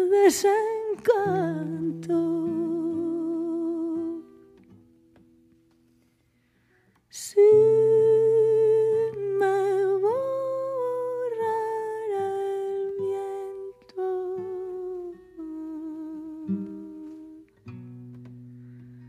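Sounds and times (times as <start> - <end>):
solo voice singing with vibrato: 0.0 - 4.6, 7.1 - 17.5.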